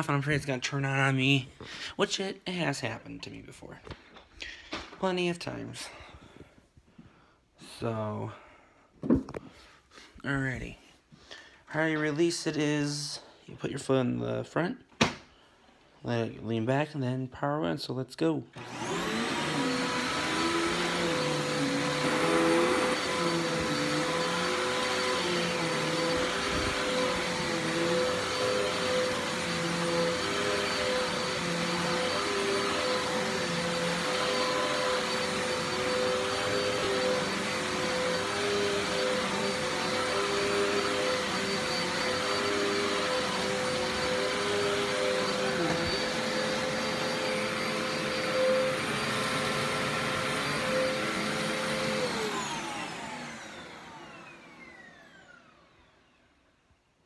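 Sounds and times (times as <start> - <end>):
vacuum cleaner on carpet: 18.6 - 56.2
vacuum motor winding down: 18.6 - 56.2.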